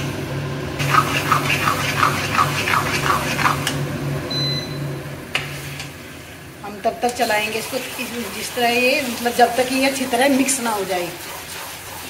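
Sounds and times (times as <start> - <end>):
spatula scraping a pan: 8.0 - 12.0.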